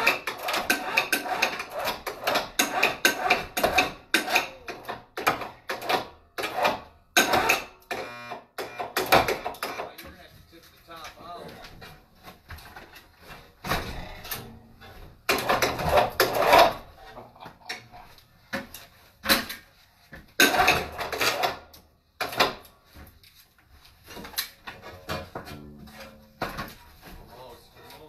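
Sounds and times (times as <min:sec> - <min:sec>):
scraping and knocking: 0:09.2 - 0:21.6, 0:23.8 - 0:28.0.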